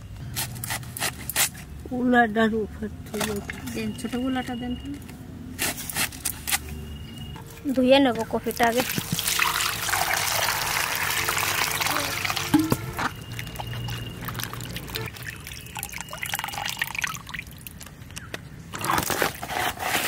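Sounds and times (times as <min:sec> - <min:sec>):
hands washing cabbage in water: 0:08.1 - 0:18.0
water pouring into a pot: 0:08.6 - 0:17.9.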